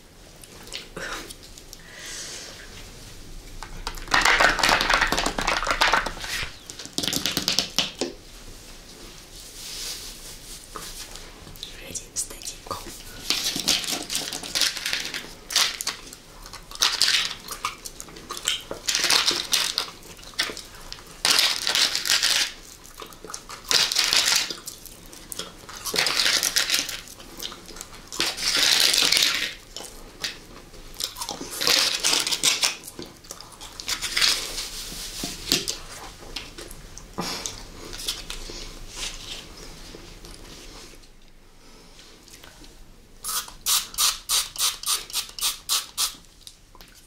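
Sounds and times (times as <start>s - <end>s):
crunching and chewing candy: 12.8s - 39.5s.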